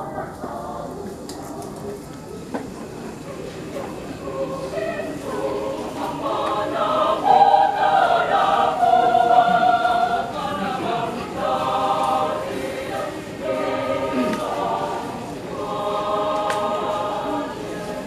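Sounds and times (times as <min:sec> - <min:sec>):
choir singing in harmony: 0:00.0 - 0:01.2, 0:03.8 - 0:18.0.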